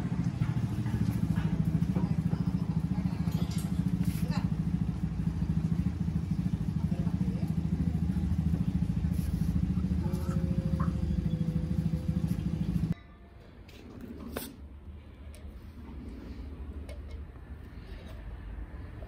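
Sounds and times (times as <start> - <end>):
deep buzzing bass: 0.0 - 13.0.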